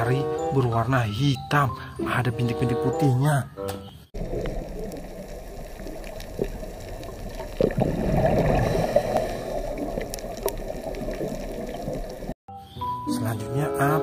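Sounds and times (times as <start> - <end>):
aquarium air stone bubbling: 4.2 - 12.4.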